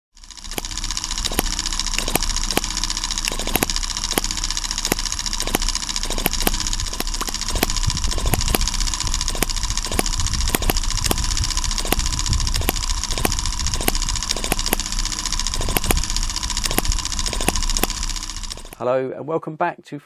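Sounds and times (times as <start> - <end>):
model engine popping: 0.2 - 18.8.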